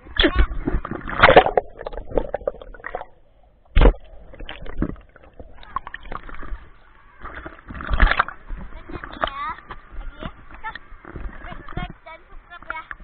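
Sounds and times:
water splashing and sloshing: 0:00.0 - 0:13.0
loud splash: 0:00.9 - 0:06.6.

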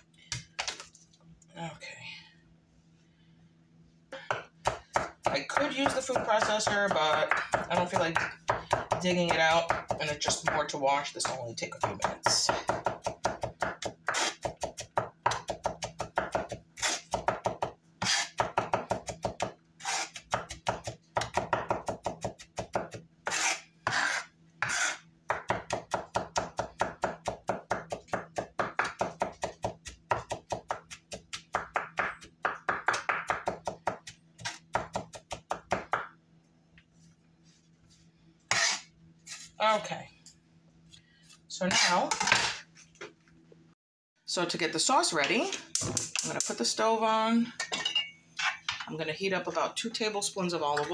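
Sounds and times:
knife chopping on wooden board: 0:04.3 - 0:10.6, 0:11.8 - 0:36.2.

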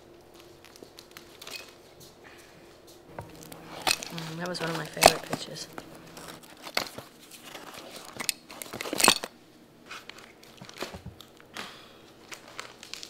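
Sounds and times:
stiff photo pages crinkling and tearing: 0:03.2 - 0:09.1, 0:09.9 - 0:11.6, 0:12.2 - 0:13.0.

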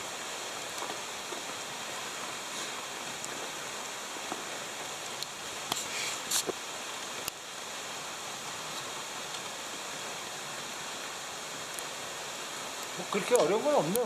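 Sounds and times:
rushing meltwater: 0:00.0 - 0:14.0.

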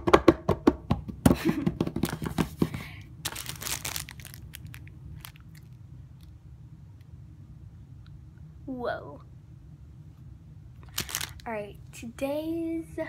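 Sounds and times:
hand taps drum roll: 0:00.0 - 0:02.8
plastic packaging crinkling: 0:03.2 - 0:06.3, 0:10.8 - 0:11.5.

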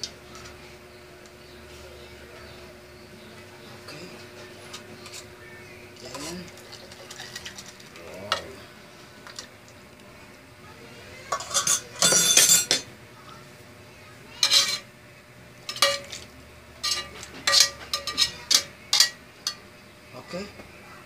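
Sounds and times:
metal spoon scraping a frying pan: 0:11.3 - 0:12.8, 0:14.4 - 0:14.9, 0:15.7 - 0:19.6.

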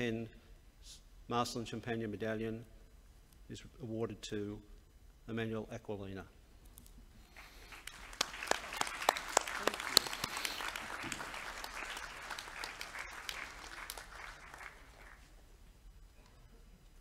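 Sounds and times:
audience applauding: 0:07.4 - 0:15.4.

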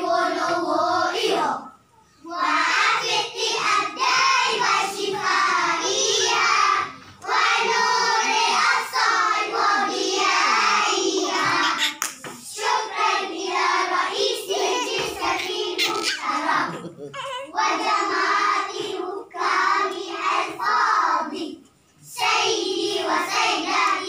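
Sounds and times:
children singing in unison: 0:00.0 - 0:24.0.

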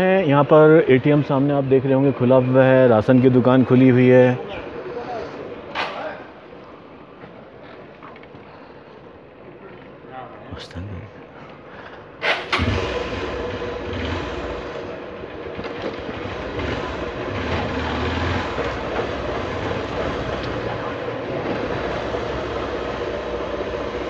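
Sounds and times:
vehicle engine running: 0:12.5 - 0:24.0.

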